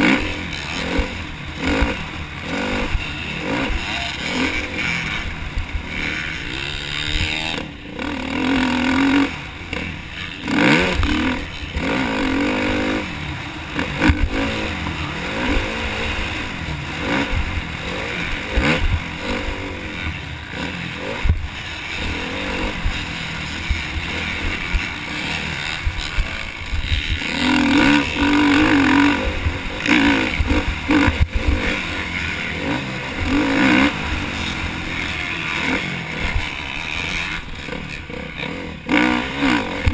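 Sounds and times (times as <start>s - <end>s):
motocross bike engine revving: 0.0s - 39.9s.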